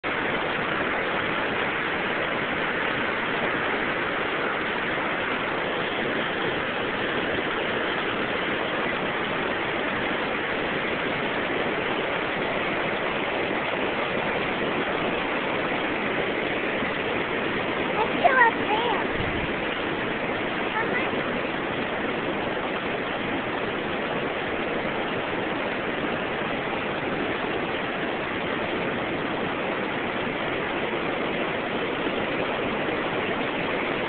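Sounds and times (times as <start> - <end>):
floodwater rushing: 0.0 - 34.0.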